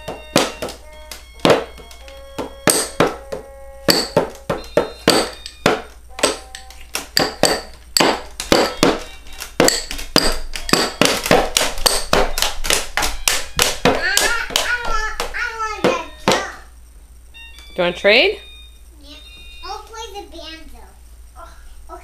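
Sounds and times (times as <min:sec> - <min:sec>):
toy drum beaten with sticks: 0:00.0 - 0:16.8
toy keyboard notes: 0:00.0 - 0:20.6.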